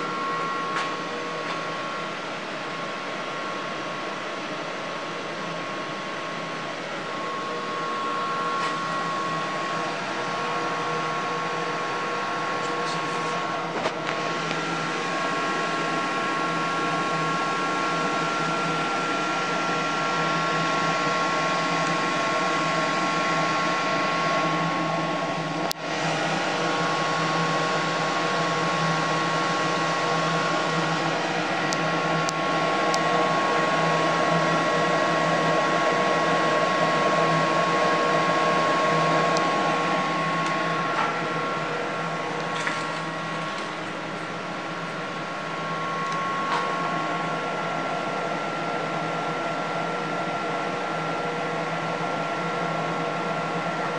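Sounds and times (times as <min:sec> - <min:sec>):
high electrical whine: 0:00.0 - 0:53.9
machinery and cooling fans whirring: 0:00.0 - 0:53.9.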